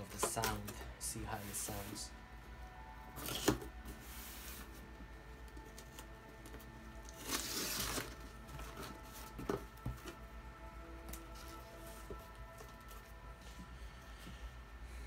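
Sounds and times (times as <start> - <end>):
packing tape tearing: 3.2 - 3.7, 5.6 - 9.8.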